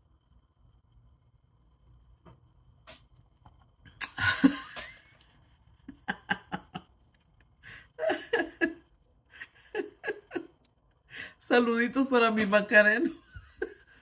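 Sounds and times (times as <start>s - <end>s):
woman laughing: 4.0s - 5.2s, 5.9s - 7.0s, 7.7s - 10.6s, 13.0s - 14.0s.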